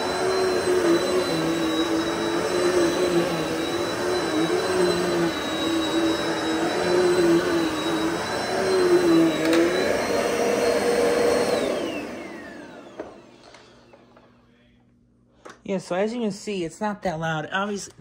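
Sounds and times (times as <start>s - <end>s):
upright vacuum running on a rug: 0.0s - 14.4s
vacuum motor spinning down: 0.0s - 14.4s.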